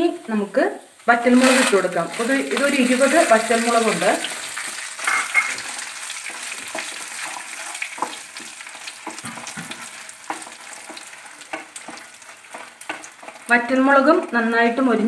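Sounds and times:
chillies sizzling in oil: 0:00.0 - 0:15.0
wooden spatula scraping and clicking: 0:05.5 - 0:13.5.

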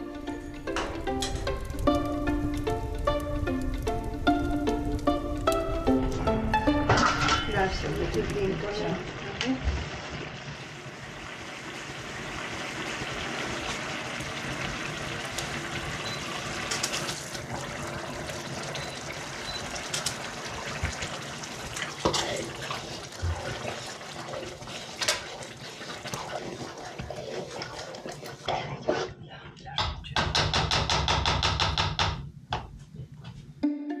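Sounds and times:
sauce bubbling and sizzling in a pot: 0:00.0 - 0:29.2.

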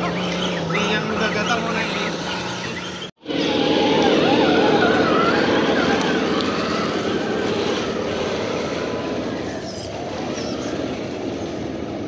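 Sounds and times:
electric motor and gears whining: 0:00.0 - 0:12.0.

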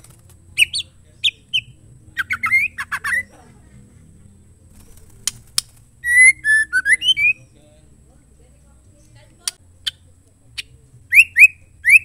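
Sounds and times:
bird chattering and whistling: 0:00.5 - 0:03.5, 0:04.4 - 0:07.6, 0:09.4 - 0:12.0.

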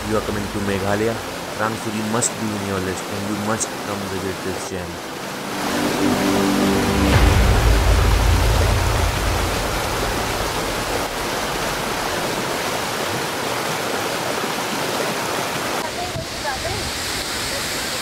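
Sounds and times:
waterfall rushing into pool: 0:00.0 - 0:18.0
low rumble: 0:05.5 - 0:12.2.

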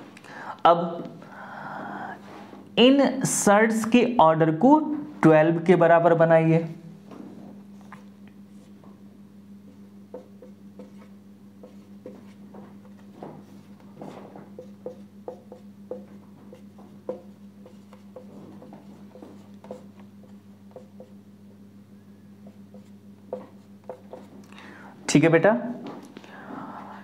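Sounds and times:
steady low hum: 0:00.0 - 0:27.0
marker scratching on whiteboard: 0:09.7 - 0:21.2, 0:22.4 - 0:24.4.

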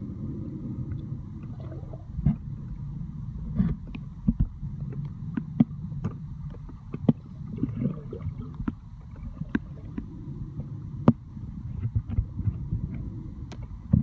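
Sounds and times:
underwater rumble of moving water: 0:00.0 - 0:14.0.

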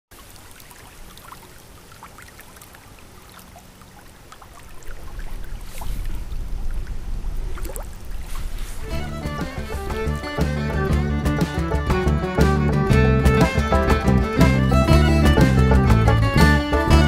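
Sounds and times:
small water splashes: 0:00.1 - 0:10.8
water lapping and trickling: 0:00.1 - 0:11.9.

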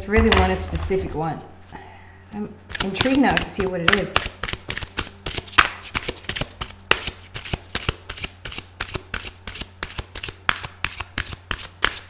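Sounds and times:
cards being shuffled: 0:02.7 - 0:12.0.

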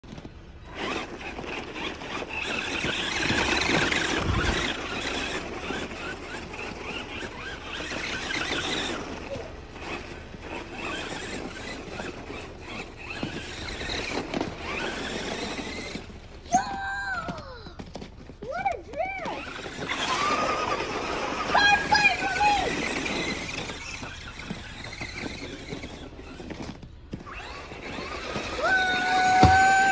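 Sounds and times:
rc truck motor whining: 0:00.0 - 0:29.9
tyres churning through snow: 0:00.0 - 0:29.9.

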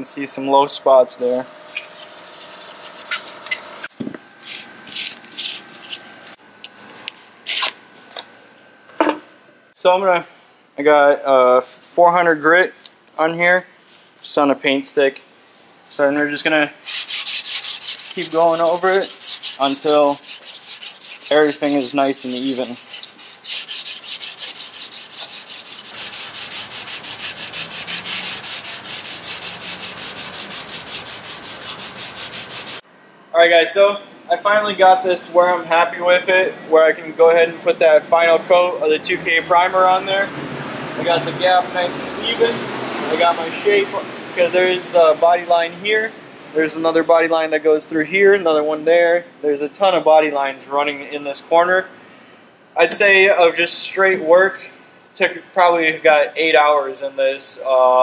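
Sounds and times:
sandpaper rubbing strokes: 0:01.2 - 0:06.4, 0:11.8 - 0:14.5, 0:16.8 - 0:32.8, 0:39.1 - 0:40.7, 0:42.6 - 0:44.7.

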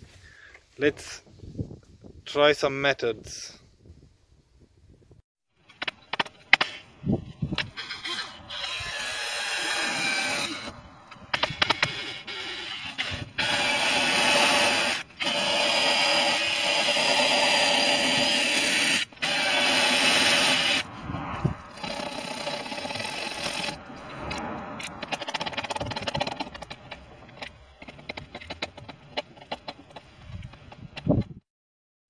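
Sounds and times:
drill wire brush scouring metal: 0:07.6 - 0:20.9, 0:21.6 - 0:30.9.

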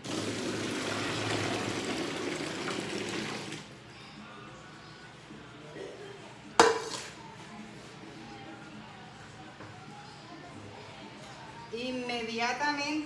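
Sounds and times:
hot liquid pouring into bucket: 0:00.0 - 0:03.7
metal pot clanging on sink: 0:06.6 - 0:07.1.

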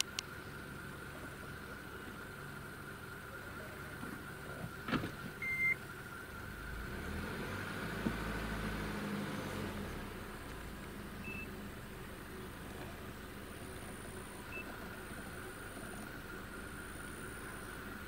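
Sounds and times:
sharp click: 0:00.0 - 0:00.3
vehicle engine idling: 0:00.0 - 0:18.0
short high beep: 0:05.4 - 0:05.8.

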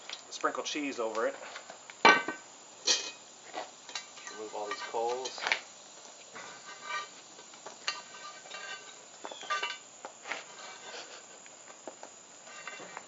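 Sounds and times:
metal tongs clinking on iron lid: 0:02.8 - 0:03.2, 0:07.9 - 0:09.8.

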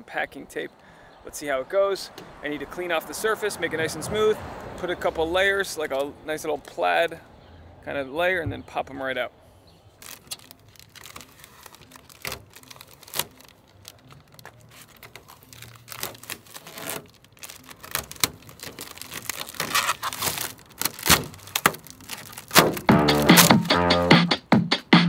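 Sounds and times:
packing tape crinkling and tearing: 0:10.0 - 0:23.9
sharp tape rip: 0:10.1 - 0:13.5, 0:14.4 - 0:24.1.

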